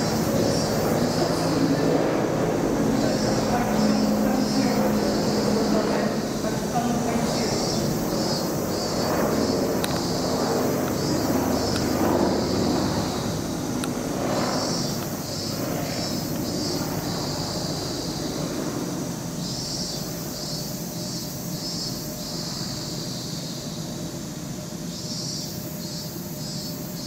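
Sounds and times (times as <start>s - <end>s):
high pulsing chirp: 0.0s - 18.5s
rumbling outdoor background noise: 0.0s - 27.0s.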